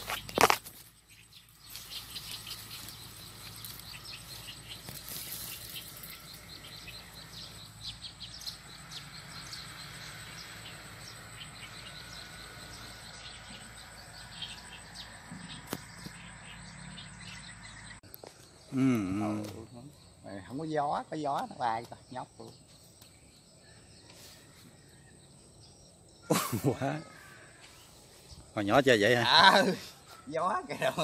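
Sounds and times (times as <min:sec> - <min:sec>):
high chirps and ticks: 0:00.0 - 0:24.2.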